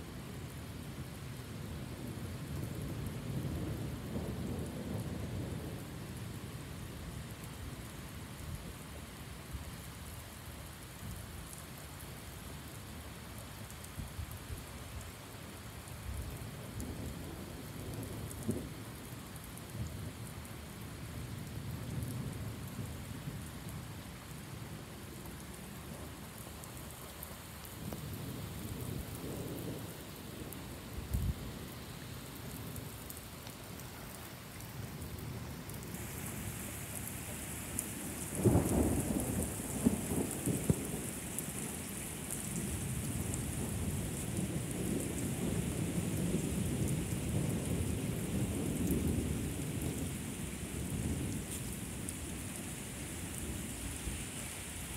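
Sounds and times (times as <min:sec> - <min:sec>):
rain falling on pavement: 0:00.0 - 0:54.9
thunder rumbling and cracking: 0:38.0 - 0:41.8.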